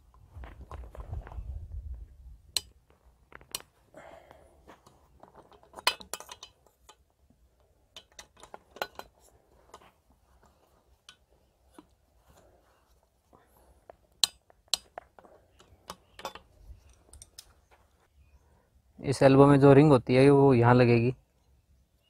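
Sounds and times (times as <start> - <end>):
metal parts clicking and clinking: 5.2 - 7.1, 7.9 - 9.9, 14.2 - 17.6.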